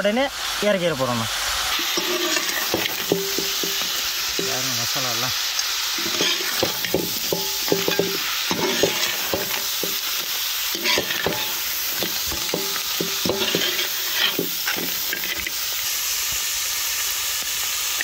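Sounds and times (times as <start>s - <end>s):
crabs sizzling in a pot: 0.0s - 18.0s
spatula and shells clattering on pot: 1.8s - 4.6s, 5.9s - 15.6s.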